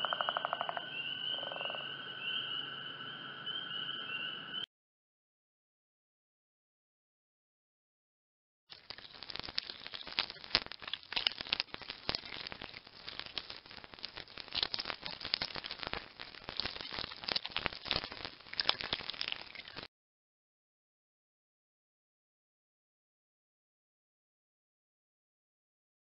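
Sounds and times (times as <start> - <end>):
dense crackling and rustling: 8.7 - 19.9.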